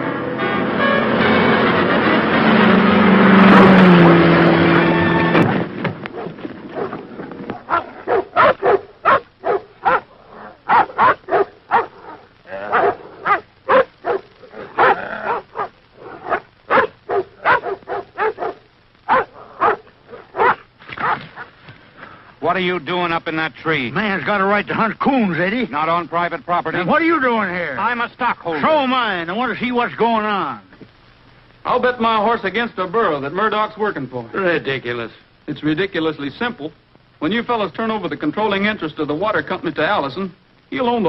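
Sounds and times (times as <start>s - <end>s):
dog barking rapidly: 6.1s - 7.0s, 7.6s - 21.5s.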